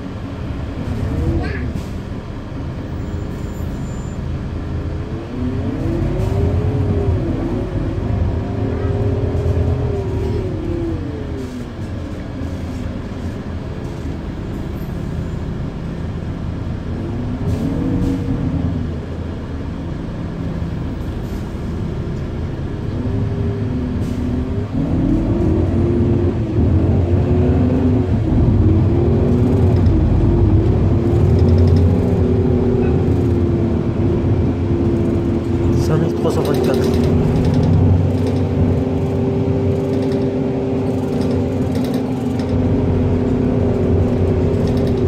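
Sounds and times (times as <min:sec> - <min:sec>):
bus engine rumble: 0:00.0 - 0:45.0
drivetrain whine: 0:24.5 - 0:45.0.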